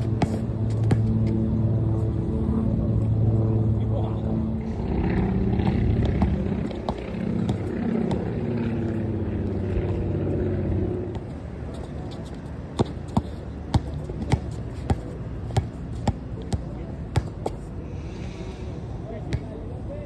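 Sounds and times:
passing vehicle rumble: 0.0 - 14.2
basketball bouncing on concrete: 0.2 - 1.1, 6.1 - 8.3, 12.8 - 17.6.

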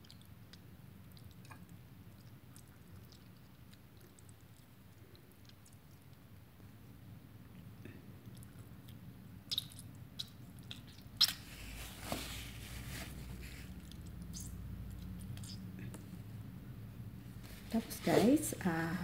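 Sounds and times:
juice dripping into a bowl: 0.0 - 11.8, 13.3 - 16.5
wet squishing of tomato: 0.0 - 17.9.

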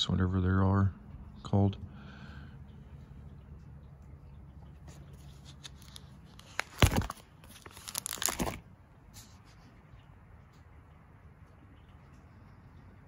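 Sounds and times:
plastic album page crinkling: 4.9 - 9.4.

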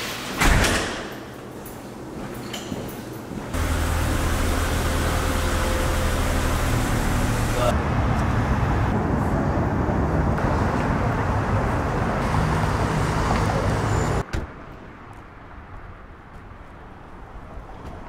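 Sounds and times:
road traffic rumble: 3.5 - 18.0.

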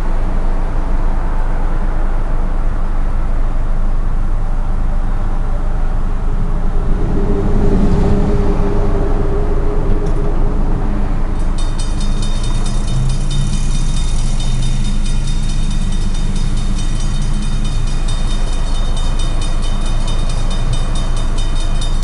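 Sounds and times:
freight train rumbling: 0.0 - 22.0
crossing bell ringing: 11.4 - 22.0.

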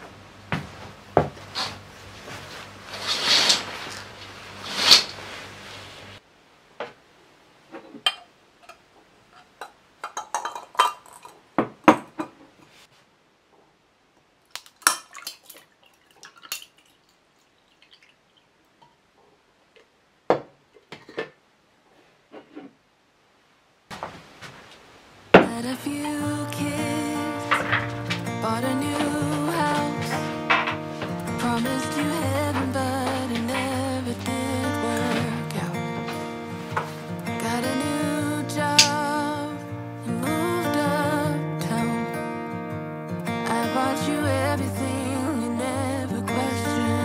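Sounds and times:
glass and ice clinking: 9.6 - 11.4.

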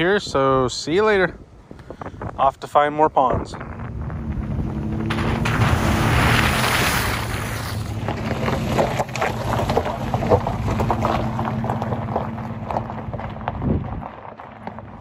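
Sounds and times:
tyres crunching over gravel: 3.4 - 15.0
truck engine running: 3.6 - 15.0
water splashing: 4.7 - 11.0.

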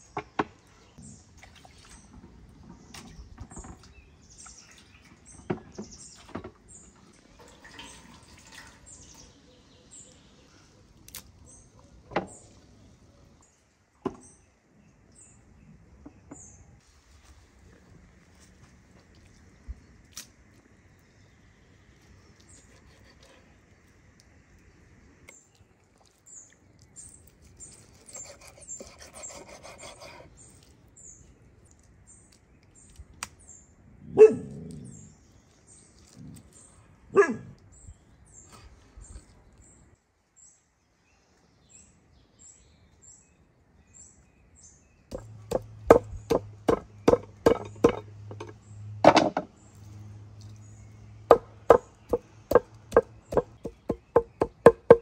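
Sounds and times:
knife cutting meat on wooden board: 22.6 - 23.6, 27.7 - 30.4, 45.1 - 48.0, 51.3 - 55.0
cleaver chopping meat on board: 45.1 - 48.1, 51.3 - 55.0
sharp knocks: 45.1 - 49.5, 51.3 - 55.0
birds chirping: 50.4 - 55.0.

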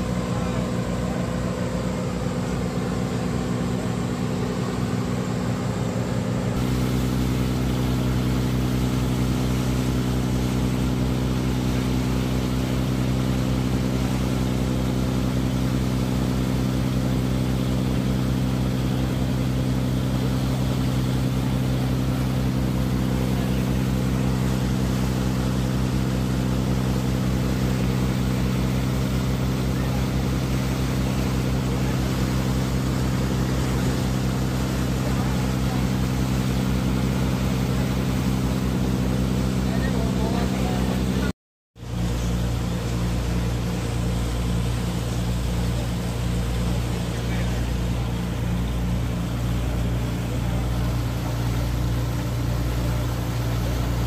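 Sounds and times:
wake rushing: 0.0 - 41.3, 41.9 - 54.0
ferry engine drone: 0.0 - 54.0.

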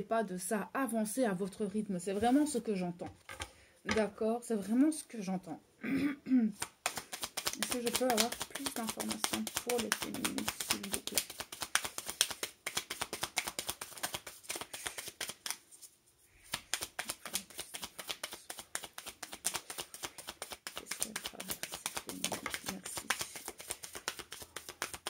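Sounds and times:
cards being shuffled: 6.6 - 25.0.

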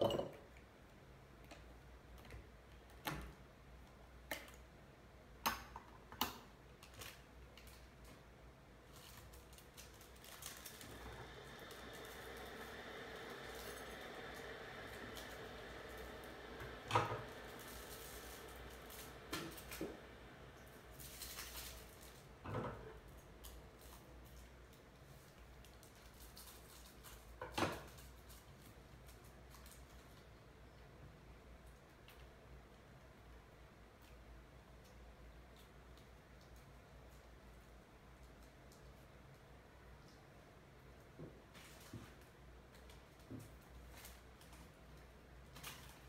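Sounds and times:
low room hum: 0.0 - 46.0
faint low hum: 6.8 - 27.2.

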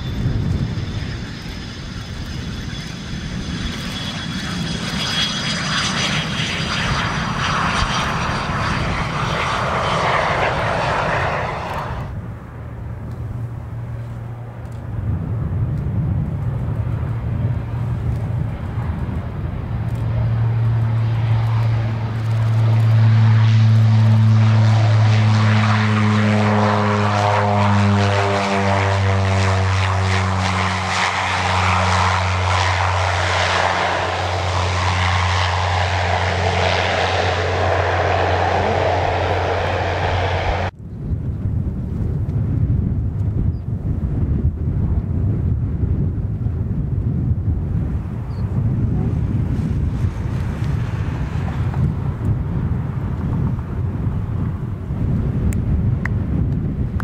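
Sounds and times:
rushing engine with high whine: 0.0 - 15.2, 16.4 - 40.8
propeller aircraft engine drone: 0.0 - 57.0.

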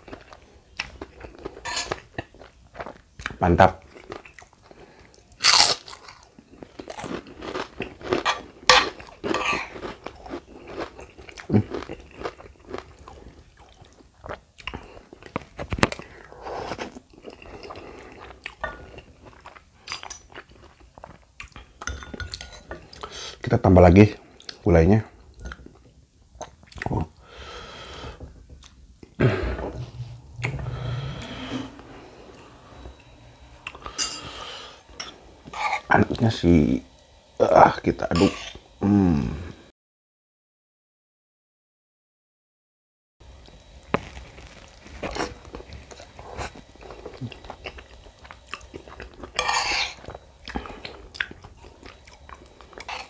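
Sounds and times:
chewing and wet mouth sounds: 0.0 - 21.7, 43.4 - 49.4, 50.0 - 53.0
wet chewing and lip smacking: 50.1 - 52.9.

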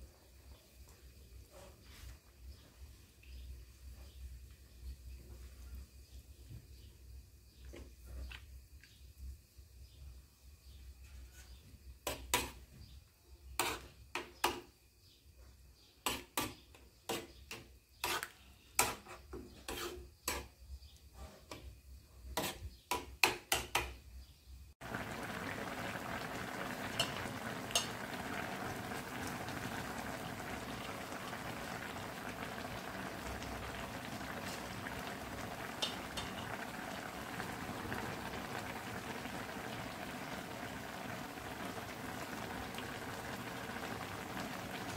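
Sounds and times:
soup simmering and bubbling: 13.6 - 14.7, 24.8 - 44.9.

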